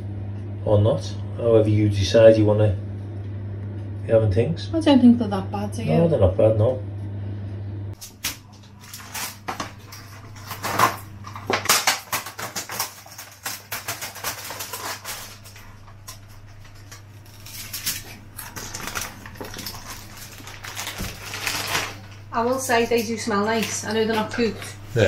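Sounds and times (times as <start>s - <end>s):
low hum: 0.0s - 12.0s
kitchen handling clicks and crinkles: 8.0s - 22.2s.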